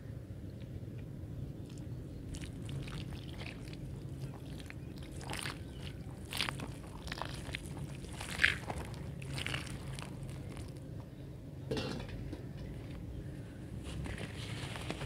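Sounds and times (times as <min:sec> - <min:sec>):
dry dirt crackling: 0:01.6 - 0:11.2, 0:13.8 - 0:15.0
water pouring onto dirt: 0:02.3 - 0:10.8.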